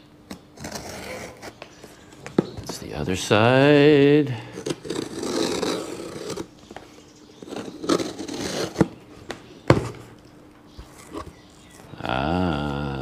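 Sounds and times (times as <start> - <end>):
knife slitting packing tape: 0.6 - 1.5, 4.6 - 6.5, 7.4 - 8.9
cardboard scraping and crinkling: 0.6 - 1.6, 4.6 - 6.5, 7.4 - 9.0, 10.8 - 12.0.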